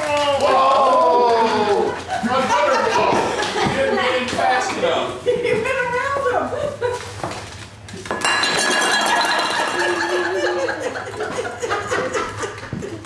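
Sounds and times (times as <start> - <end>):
metal bottles clattering on wood floor: 8.1 - 11.2
metal bottles ringing: 8.2 - 10.6.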